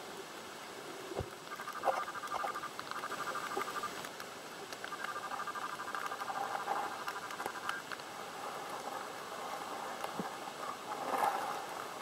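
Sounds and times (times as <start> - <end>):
underwater crackle of clicks: 1.2 - 8.1.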